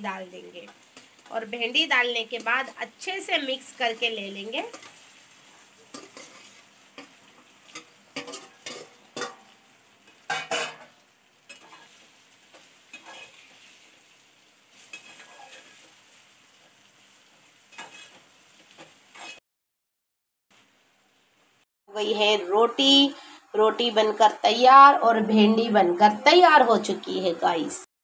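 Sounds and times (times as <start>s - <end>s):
food sizzling in a pot: 0.0s - 19.4s, 20.6s - 21.7s
spoon scraping and knocking pot: 5.9s - 9.4s.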